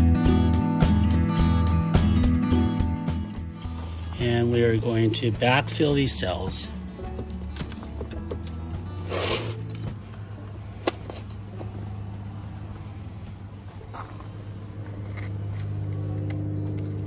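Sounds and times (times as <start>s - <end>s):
soil rustling pour: 9.1s - 9.6s
low motor hum: 9.7s - 17.0s.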